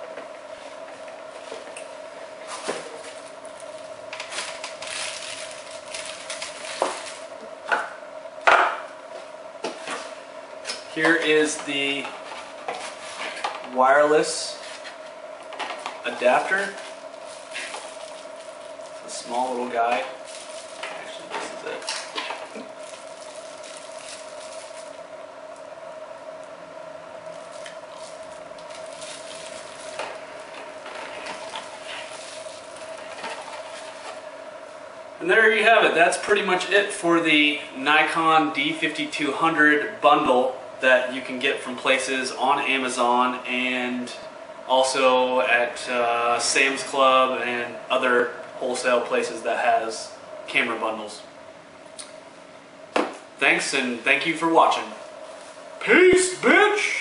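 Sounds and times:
electrical hum: 0.0s - 57.0s
plastic wrapping rustling: 2.4s - 7.3s, 15.8s - 25.0s, 27.2s - 34.3s.

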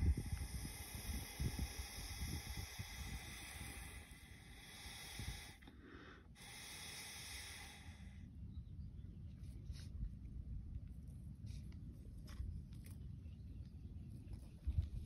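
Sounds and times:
breath blown through straw: 0.0s - 8.1s.

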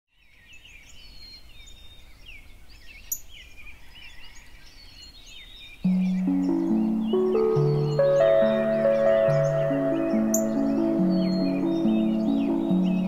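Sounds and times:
songbirds chirping and trilling: 0.1s - 13.0s
music: 5.9s - 13.0s.

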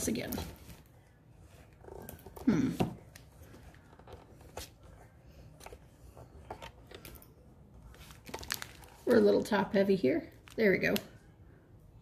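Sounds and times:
light clicks and crinkles: 3.0s - 9.5s
plastic bags rustling: 7.8s - 9.6s.

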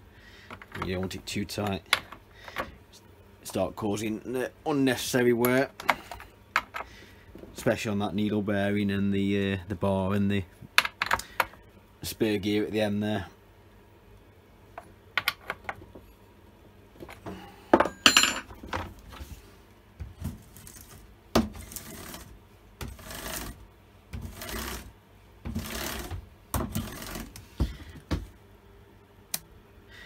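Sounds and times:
metal tool set down clanking: 17.0s - 18.9s.

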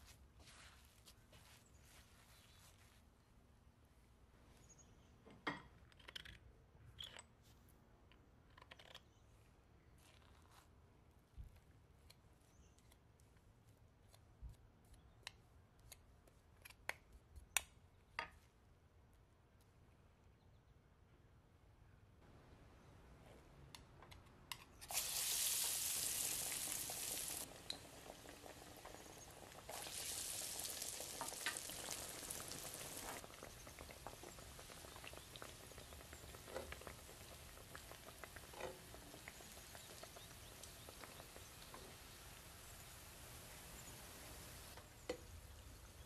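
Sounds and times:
oil pops and crackles: 24.1s - 43.2s
food deep-frying in oil: 24.8s - 46.0s.

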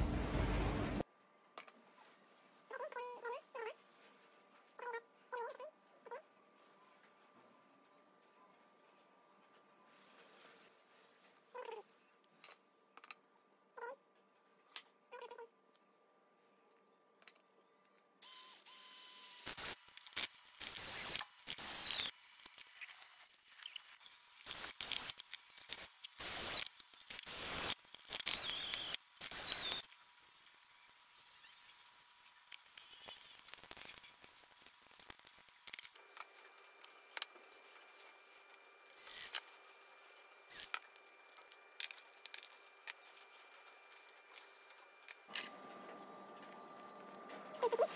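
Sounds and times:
cordless drill driving screws: 26.2s - 29.8s.

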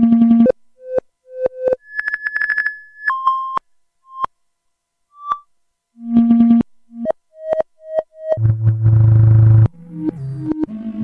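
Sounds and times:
synthesizer chirps and blips: 1.6s - 4.3s, 5.2s - 11.0s
low buzzing synthesizer tone: 5.1s - 11.0s.

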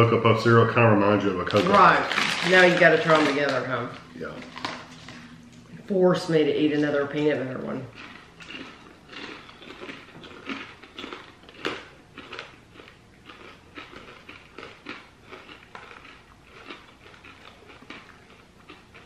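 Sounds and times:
person chewing crunchy popcorn: 1.4s - 5.4s, 7.9s - 19.0s.

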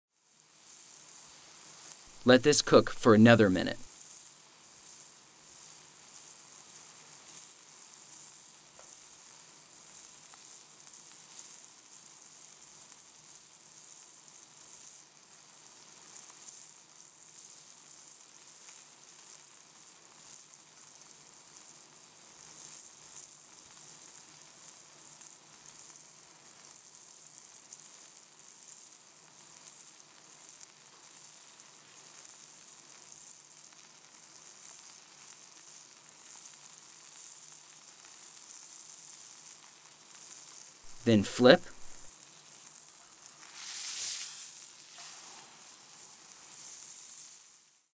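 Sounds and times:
burger patty sizzling in a skillet: 0.2s - 47.9s.

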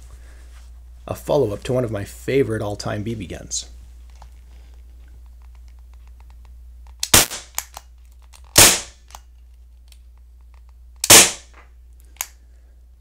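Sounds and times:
air pistol shots: 7.0s - 7.7s, 8.5s - 9.1s, 11.0s - 11.6s.

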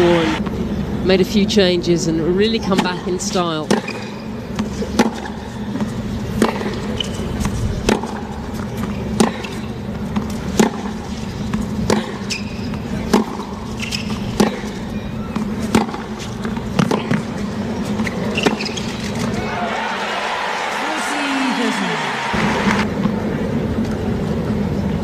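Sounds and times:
tennis ball hit by rackets: 3.7s - 19.4s.

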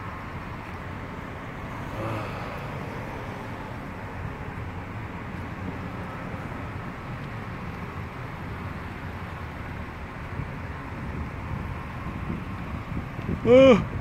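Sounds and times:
road traffic rumble: 0.0s - 14.0s.

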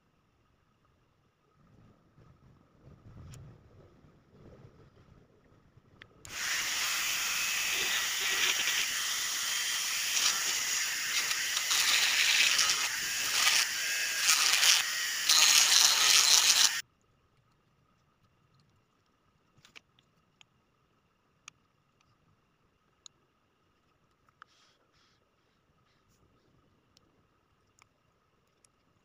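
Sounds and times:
rotary tool grinding plastic: 6.3s - 16.8s.

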